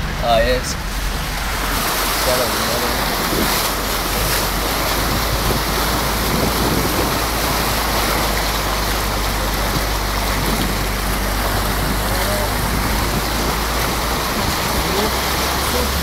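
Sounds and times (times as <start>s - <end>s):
water splashing against vehicle: 0.0s - 16.0s.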